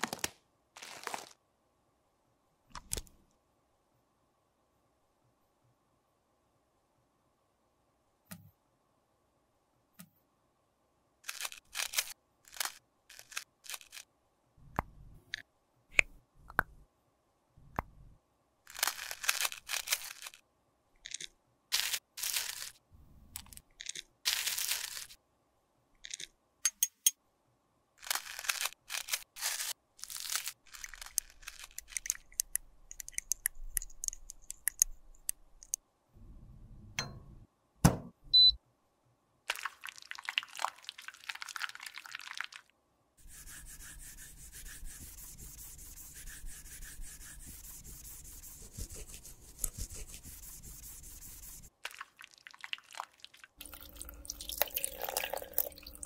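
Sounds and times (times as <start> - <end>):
sharp clicks and taps: 31.9 - 35.8.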